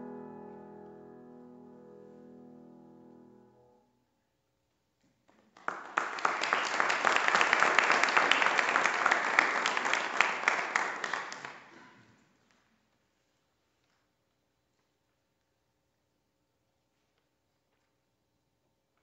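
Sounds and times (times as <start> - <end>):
piano chord: 0.0 - 3.9
audience applause: 5.6 - 12.0.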